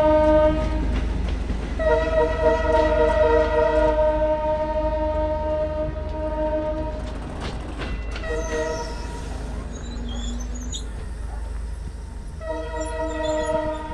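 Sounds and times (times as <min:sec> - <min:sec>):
train horn blasts: 0:00.0 - 0:01.0, 0:01.8 - 0:07.1, 0:08.1 - 0:11.3, 0:12.3 - 0:13.9.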